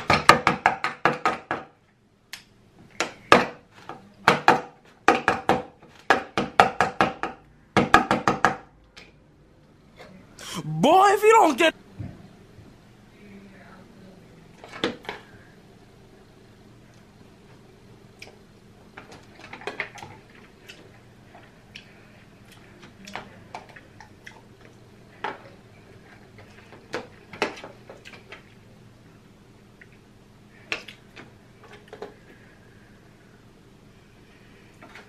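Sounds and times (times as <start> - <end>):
faint steady hum: 28.4 - 35.0.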